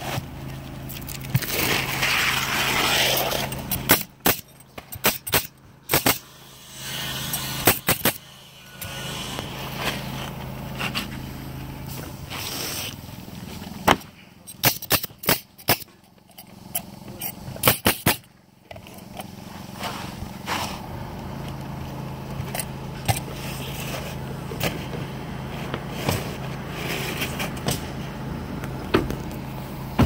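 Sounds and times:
steady low hum: 0:00.0 - 0:30.0
nailer firing nails: 0:03.7 - 0:09.5, 0:14.6 - 0:15.9, 0:17.6 - 0:18.3.

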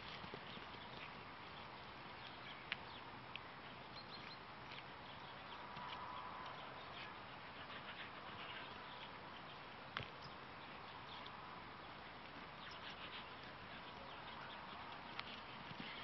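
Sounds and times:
faint bird chirps: 0:03.7 - 0:16.0.

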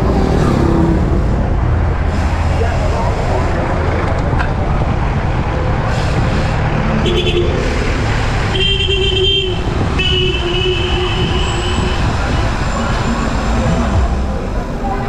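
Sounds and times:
wind rumble on microphone: 0:03.1 - 0:07.0, 0:09.4 - 0:14.5
vehicle horns tooting: 0:07.0 - 0:07.7, 0:08.5 - 0:13.4.

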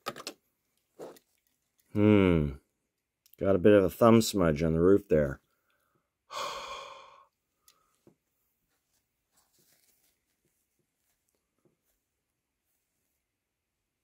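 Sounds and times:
breathy exhale: 0:06.3 - 0:07.9.

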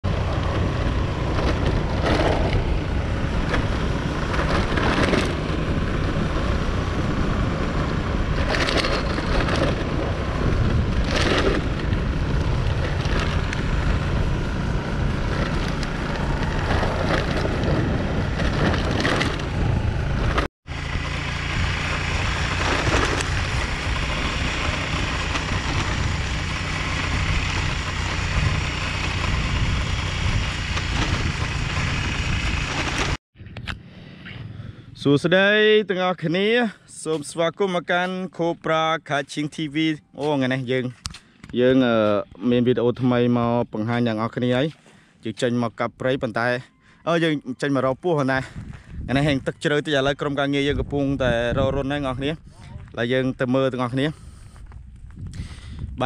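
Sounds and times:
motorbike engine running: 0:00.0 - 0:33.2
wind buffeting microphone: 0:00.0 - 0:35.0, 0:48.3 - 0:56.0.

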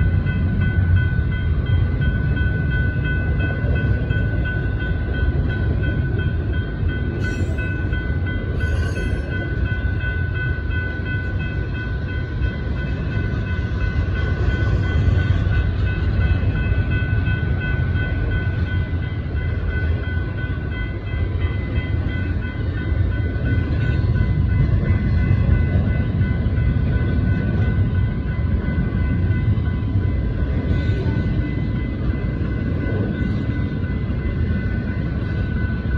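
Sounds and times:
crossing warning bell ringing: 0:00.0 - 0:35.9
train wheels rumbling on rails: 0:00.0 - 0:35.9.

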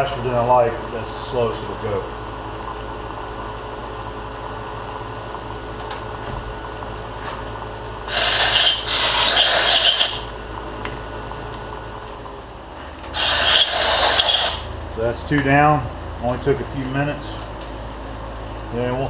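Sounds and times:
compressed air blasts: 0:08.1 - 0:10.3, 0:13.1 - 0:14.7.

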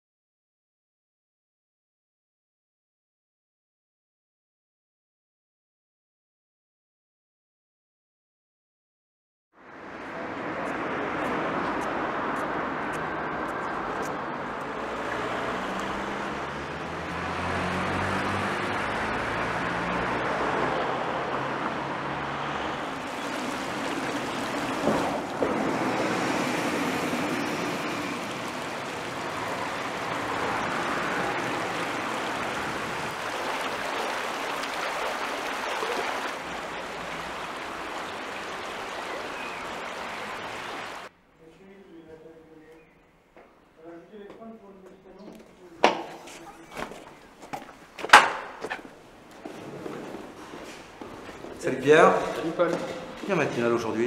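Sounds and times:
road traffic: 0:09.6 - 0:54.0
vehicle engine passing: 0:10.0 - 0:41.1.

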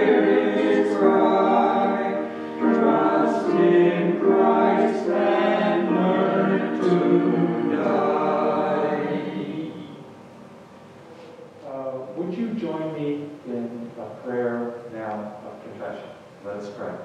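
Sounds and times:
group singing a hymn in harmony: 0:00.0 - 0:11.5.

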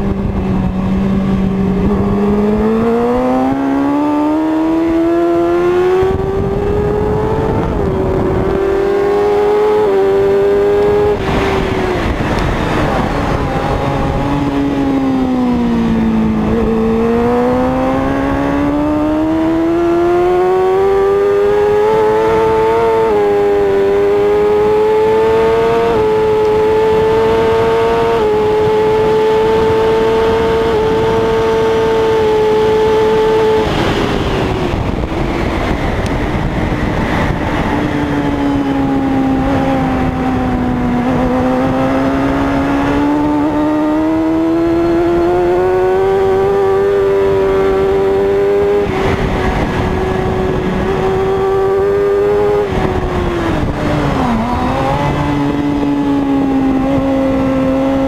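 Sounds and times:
motorcycle engine revving: 0:00.0 - 0:58.0
wind rushing over microphone: 0:00.0 - 0:58.0.

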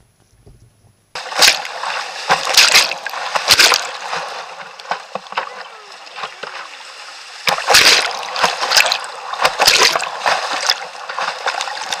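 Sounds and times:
kayak bow splashing through waves: 0:01.2 - 0:12.0
paddle striking water: 0:01.2 - 0:12.0
roar of rushing whitewater: 0:05.2 - 0:06.8.

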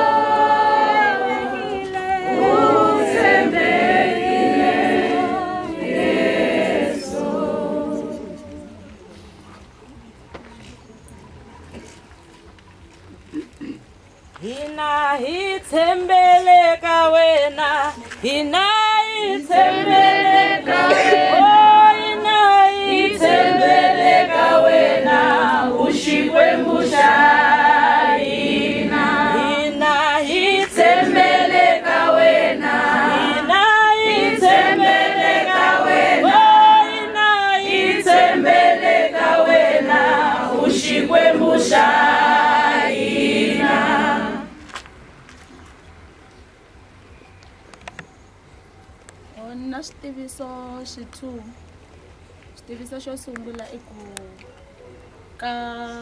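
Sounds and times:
group singing in harmony: 0:00.0 - 0:08.9, 0:19.1 - 0:44.7.

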